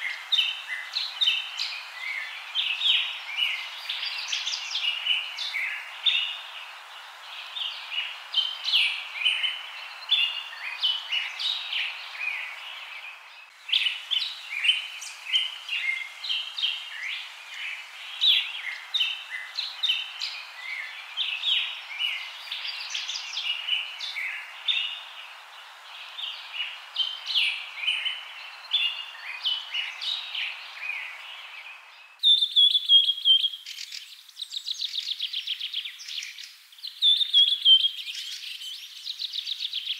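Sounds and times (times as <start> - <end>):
small birds chirping: 0.0 - 39.9
steady hiss: 0.0 - 39.9.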